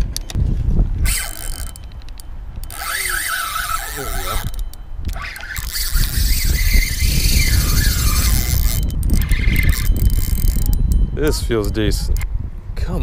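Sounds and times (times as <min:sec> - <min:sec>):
wind rumble on microphone: 0:00.0 - 0:13.0
spinning reel whining: 0:01.0 - 0:11.0.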